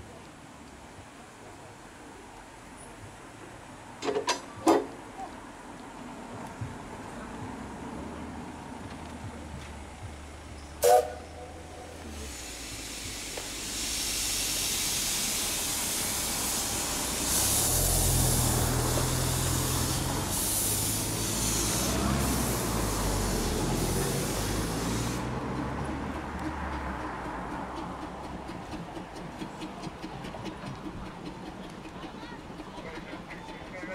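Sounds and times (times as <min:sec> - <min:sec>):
steam locomotive hissing steam: 0:10.7 - 0:33.9.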